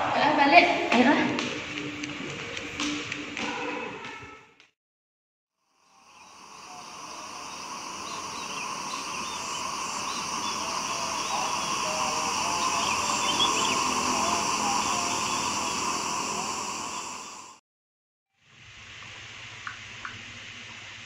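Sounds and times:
insects buzzing: 5.6 - 17.6.

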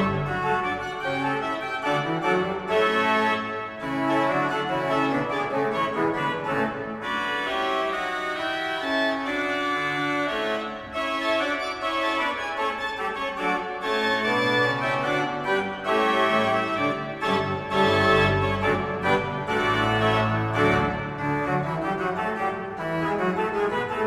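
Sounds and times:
pipe organ playing: 0.0 - 24.0.

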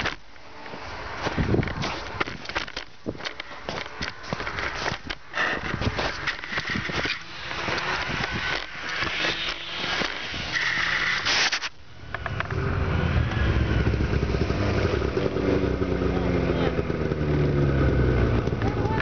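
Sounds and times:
camera scraping in snow: 0.0 - 11.8
snowmobile engine running: 3.6 - 11.3, 12.2 - 19.0.

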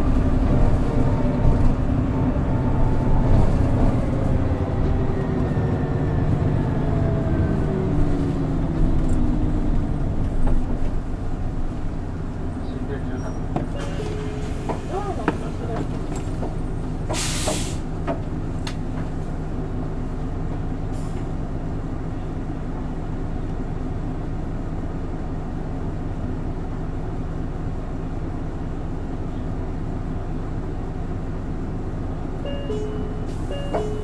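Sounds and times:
bus engine drone: 0.0 - 34.0
road noise: 0.0 - 34.0
air hiss: 17.1 - 17.9.

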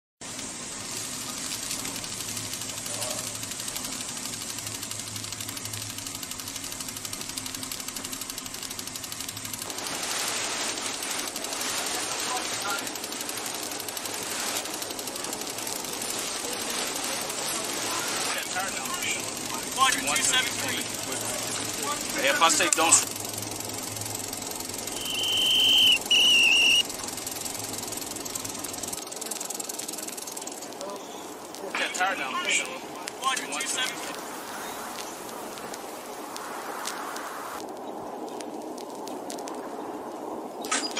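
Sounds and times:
rapid mechanical clatter: 0.2 - 36.9
hissing rush: 0.2 - 40.9
low hum: 0.2 - 40.9
high whistled notes: 24.9 - 26.9.

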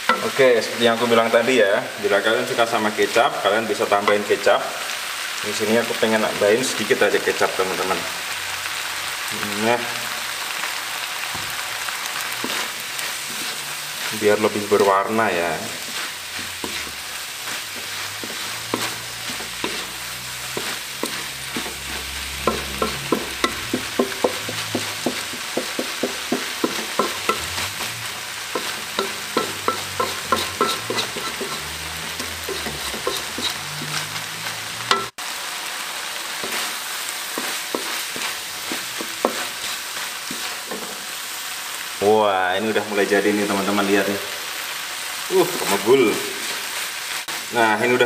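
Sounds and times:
wooden spatula scraping a wok: 0.0 - 1.4, 10.3 - 35.2, 36.2 - 41.8, 43.1 - 47.6
stir-fry sizzling in a wok: 0.0 - 48.0.

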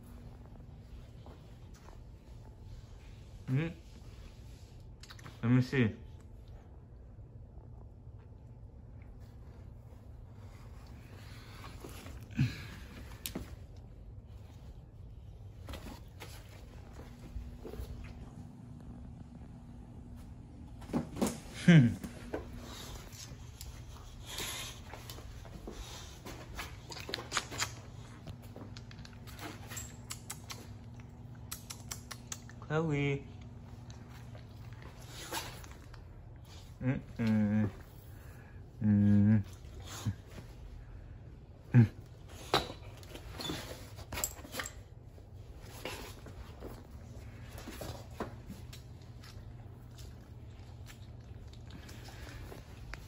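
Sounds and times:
dog claws clicking on tile: 29.9 - 32.6.

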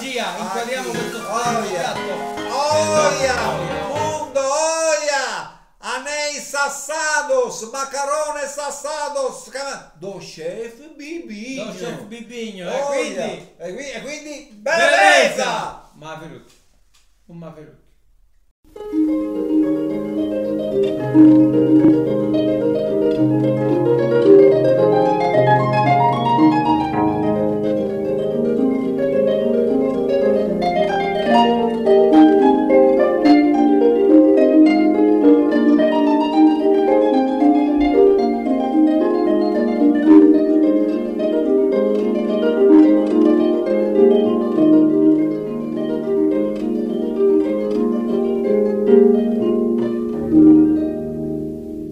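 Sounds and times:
harp-like plucked string music: 1.0 - 4.6, 18.8 - 51.9.

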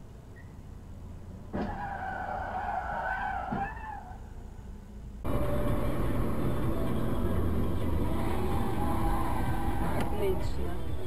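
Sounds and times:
car driving road noise: 0.0 - 11.0
car tyres squealing: 1.5 - 4.4, 8.0 - 10.8.

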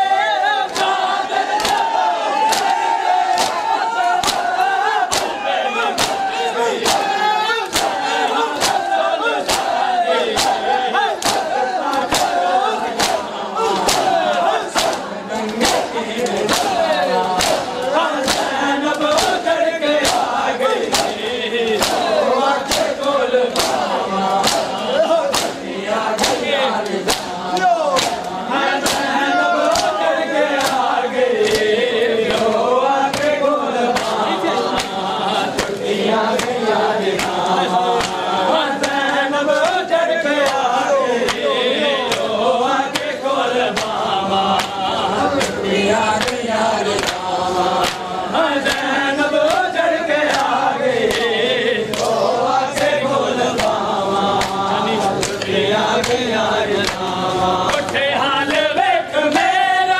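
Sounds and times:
men chanting in unison: 0.0 - 59.9
hands slapping chests: 0.7 - 58.7.

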